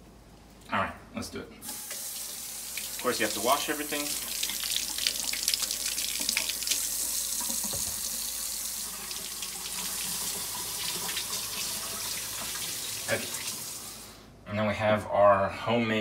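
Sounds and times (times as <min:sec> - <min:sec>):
faucet running into steel sink: 0:01.7 - 0:14.0.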